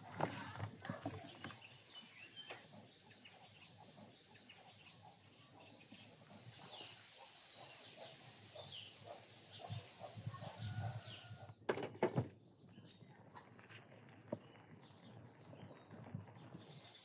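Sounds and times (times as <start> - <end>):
small birds chirping: 0.0 - 11.6, 12.2 - 17.0.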